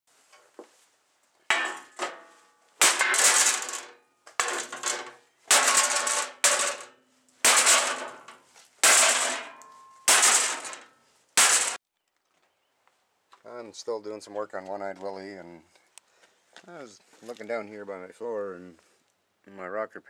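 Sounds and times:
sledgehammer striking sheet metal: 0:01.5 - 0:11.8.

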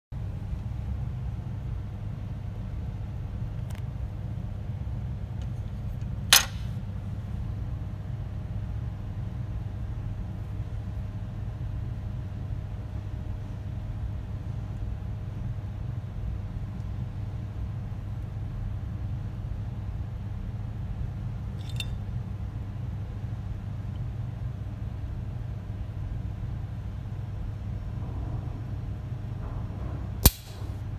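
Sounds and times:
low background hum: 0:00.1 - 0:30.9
low rumble: 0:27.4 - 0:30.9
lighter lid metallic click: 0:30.2 - 0:30.6.

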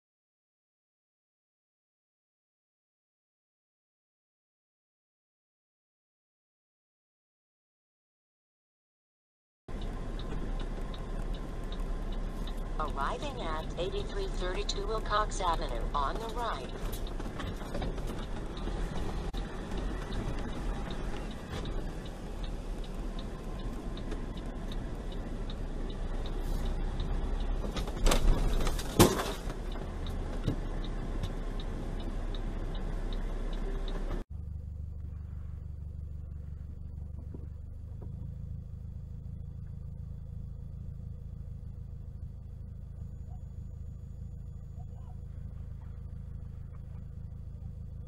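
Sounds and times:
faint regular ticking: 0:09.7 - 0:28.0, 0:29.4 - 0:38.3
engine and road rumble: 0:09.7 - 0:48.0
low vehicle hum: 0:09.7 - 0:48.0.

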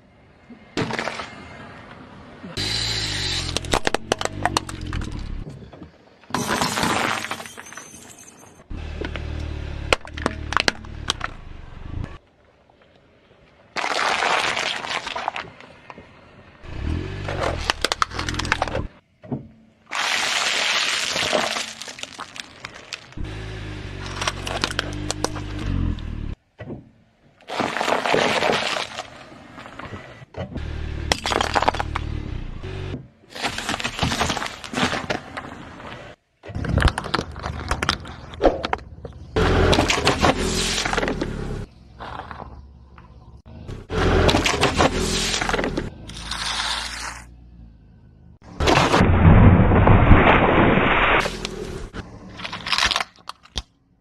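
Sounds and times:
candy crunching under tyre: 0:13.7 - 0:15.7, 0:19.9 - 0:23.2, 0:27.5 - 0:29.7, 0:33.3 - 0:35.5, 0:44.3 - 0:47.3, 0:52.2 - 0:53.8
tomatoes squashing and crackling: 0:13.7 - 0:15.7, 0:19.9 - 0:23.2, 0:27.4 - 0:29.7, 0:44.4 - 0:47.3, 0:51.2 - 0:53.8
plastic cracking under car tyre: 0:13.8 - 0:15.9, 0:52.3 - 0:53.8.

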